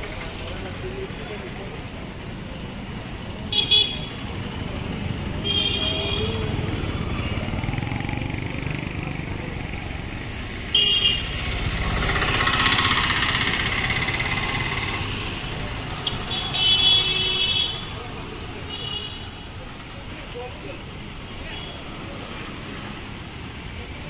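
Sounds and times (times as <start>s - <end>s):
street traffic with motorcycles: 0.0s - 24.0s
vehicle horn honking: 5.4s - 6.4s, 10.7s - 11.3s, 16.1s - 17.8s
vehicle passing close: 6.4s - 16.0s.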